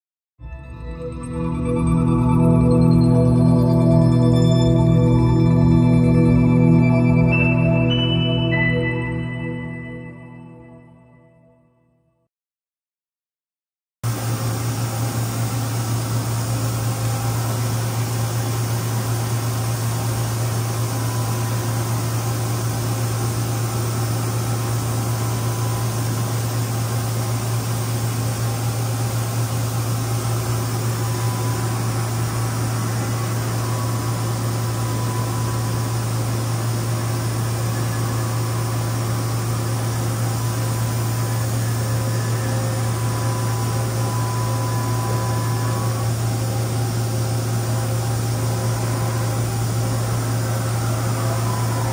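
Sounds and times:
fan-like hiss: 14.1 - 51.9
low electrical hum: 14.1 - 51.9
faint high tone: 29.3 - 51.9.

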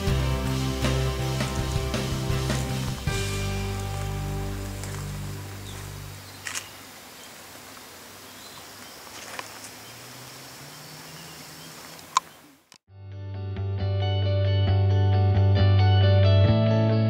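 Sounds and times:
steady hiss: 0.0 - 12.6.

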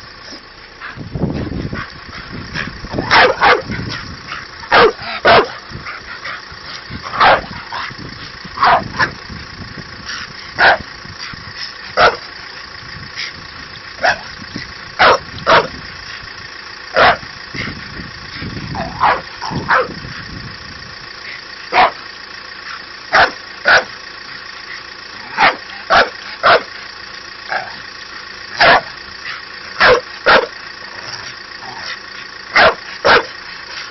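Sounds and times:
dog barking: 3.1 - 3.7, 4.7 - 5.6, 7.2 - 7.5, 8.6 - 9.1, 10.6 - 10.8, 12.0 - 12.2, 15.0 - 15.7, 17.0 - 17.2, 18.8 - 20.0, 21.7 - 22.0, 23.1 - 24.0, 25.4 - 26.7, 28.6 - 28.9, 29.8 - 30.5, 32.6 - 33.3.

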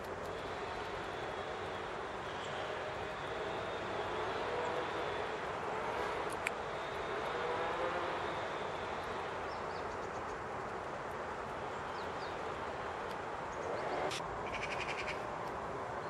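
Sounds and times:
distant chainsaw running: 0.3 - 9.6.

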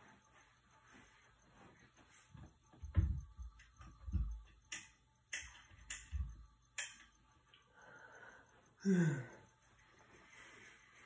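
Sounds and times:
low thumps: 2.8 - 4.5.

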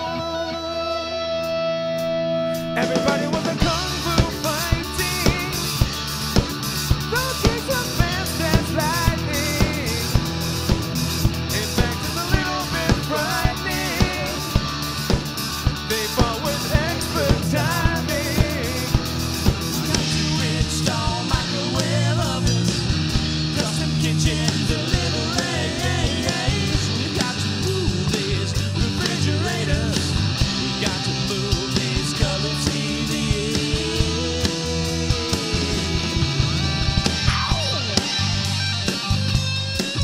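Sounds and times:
person singing: 0.0 - 1.4, 2.6 - 5.9, 7.0 - 10.2, 11.5 - 14.6, 15.9 - 19.0, 19.8 - 22.8, 23.5 - 36.2
rock band playing: 0.0 - 40.0.

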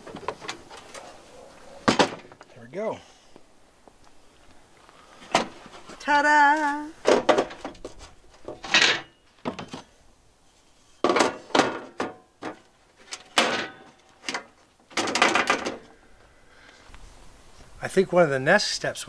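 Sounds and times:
metal grill grate clanks and scrapes: 7.2 - 9.8, 10.9 - 15.8.

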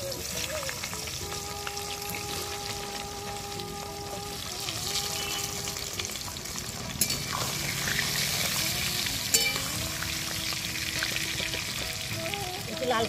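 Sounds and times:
vegetables sizzling in hot oil: 0.0 - 13.0.

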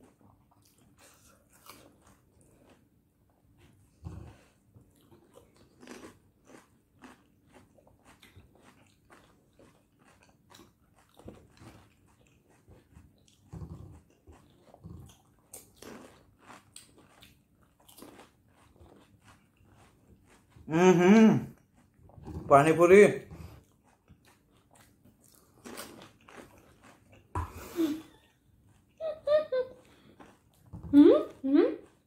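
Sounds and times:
wet chewing: 0.0 - 32.0
crisp food crunching: 4.9 - 20.6, 23.6 - 27.3.

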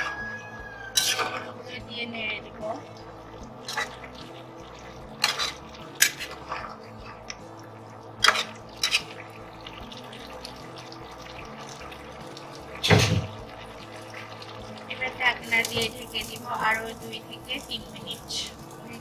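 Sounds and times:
spatula scraping a metal pot: 0.9 - 1.6, 3.6 - 4.2, 5.1 - 6.9, 8.2 - 9.2.

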